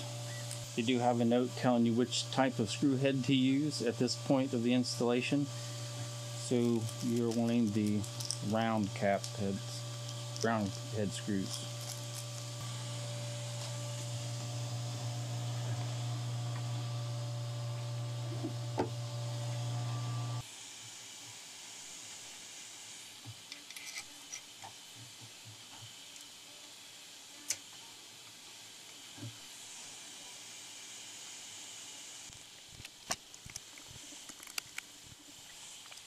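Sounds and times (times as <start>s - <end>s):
steady low hum: 0.0s - 20.4s.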